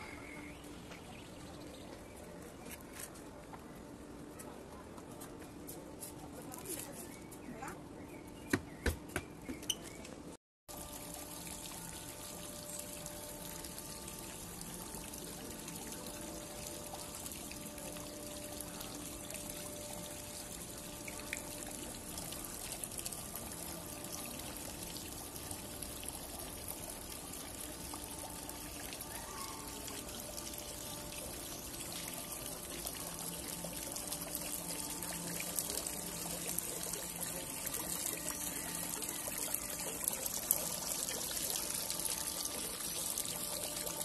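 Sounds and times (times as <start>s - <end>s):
fountain water splashing: 10.7s - 44.0s.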